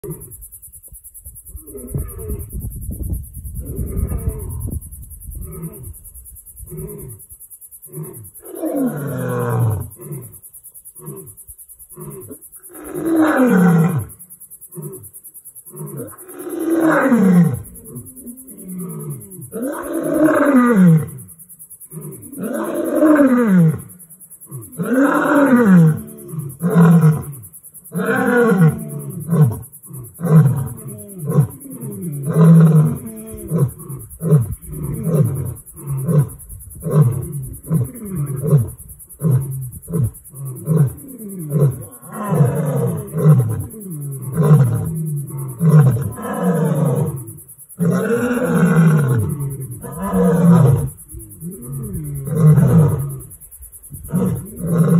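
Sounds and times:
lions roaring: 27.9 - 53.3.

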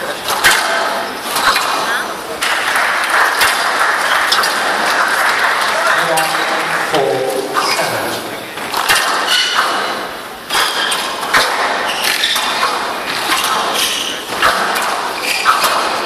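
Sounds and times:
squash ball hitting rackets and walls: 0.0 - 16.0
shoes squeaking on court floor: 7.4 - 8.7, 10.5 - 14.4, 15.2 - 15.9.

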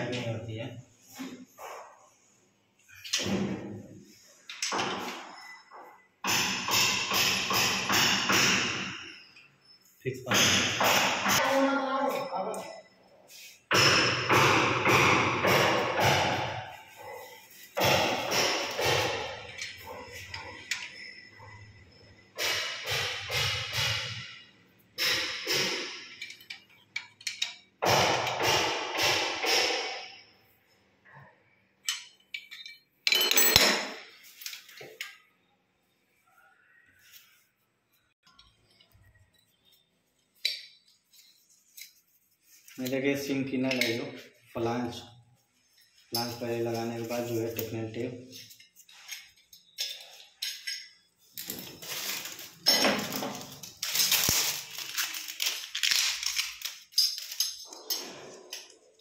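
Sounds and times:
metal wrench clinking: 18.4 - 21.6, 26.0 - 27.7, 31.8 - 35.3, 47.5 - 54.3, 55.9 - 58.7.

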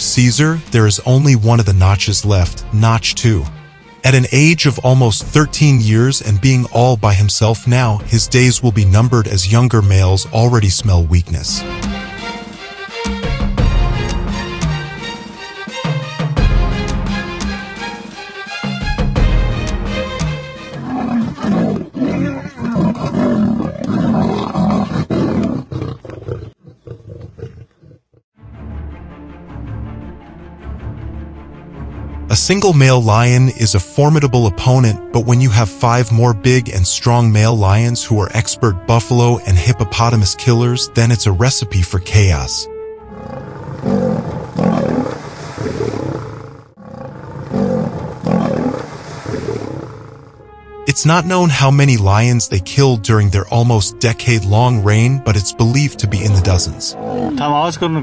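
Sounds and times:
lions snarling and roaring: 20.7 - 28.2, 43.0 - 50.4, 56.2 - 57.4.

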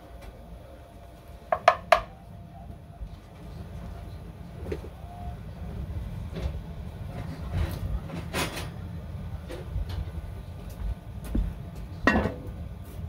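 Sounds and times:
utensil knocking metal pot: 1.5 - 2.1.

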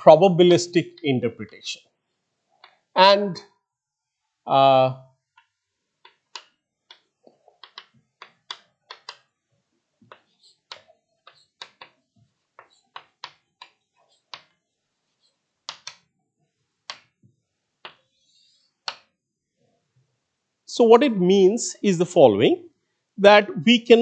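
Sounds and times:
chalk tapping on blackboard: 7.6 - 9.2, 10.0 - 12.0, 12.6 - 14.6, 15.7 - 16.0, 17.8 - 18.1, 18.8 - 19.1.

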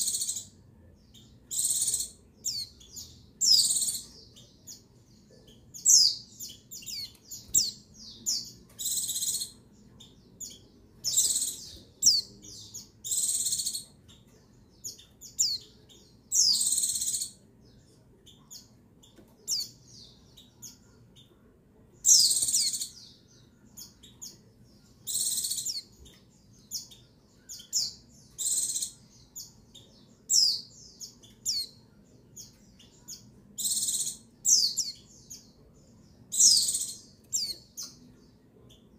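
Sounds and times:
bird chirps and whistles: 33.6 - 34.8.

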